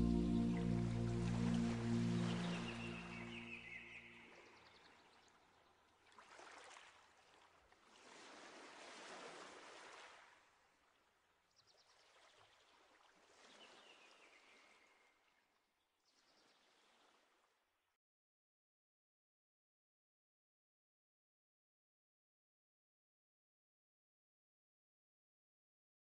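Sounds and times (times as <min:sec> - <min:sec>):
water washing in slow swells: 0:00.0 - 0:04.0.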